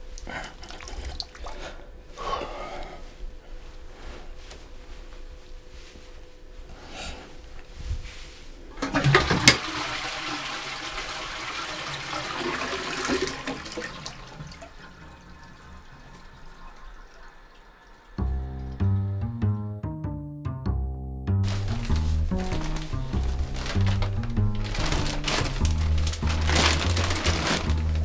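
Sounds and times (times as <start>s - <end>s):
toilet flush clunk: 8.8s - 18.8s.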